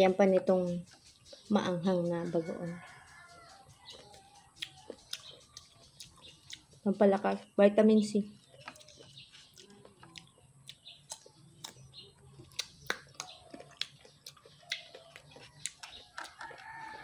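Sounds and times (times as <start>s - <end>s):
chickens clucking: 0.2s - 6.8s, 8.4s - 17.0s
rooster crowing: 2.2s - 4.5s, 16.1s - 17.0s.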